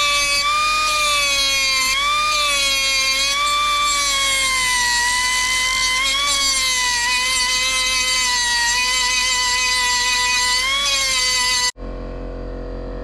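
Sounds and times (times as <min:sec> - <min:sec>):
rotary tool drilling into metal: 0:00.0 - 0:11.8.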